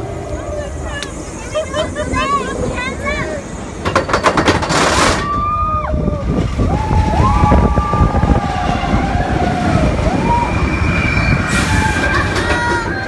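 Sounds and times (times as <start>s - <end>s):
roller coaster rumbling on track: 0.0s - 13.0s
rush of wind: 0.0s - 13.0s
riders screaming: 5.0s - 13.0s.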